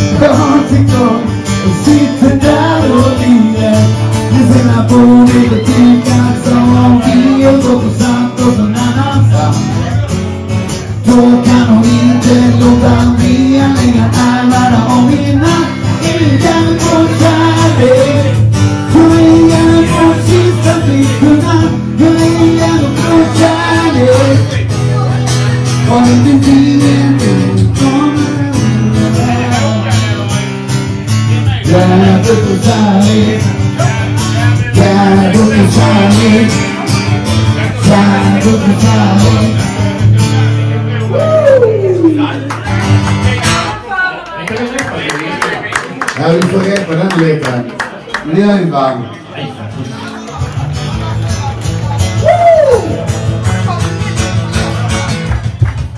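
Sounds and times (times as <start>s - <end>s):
man singing: 0.0s - 42.4s
acoustic guitar: 0.0s - 55.9s.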